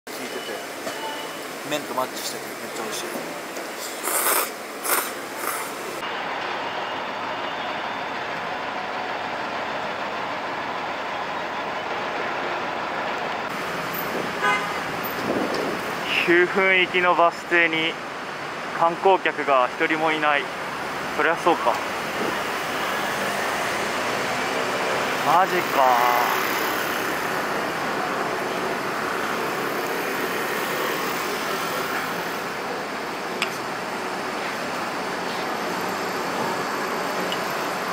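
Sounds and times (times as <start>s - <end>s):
city road traffic rumble: 0.1s - 37.9s
bus pulling up: 2.8s - 16.2s, 20.4s - 37.9s
man slurping noodles: 3.8s - 5.9s.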